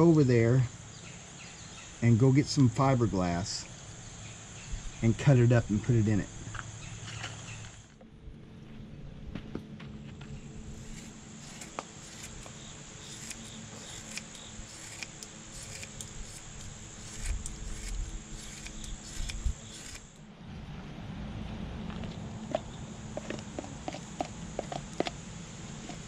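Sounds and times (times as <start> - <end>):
high-pitched insect drone: 10.7 - 20.2
scissors snipping cloth: 10.8 - 20.2.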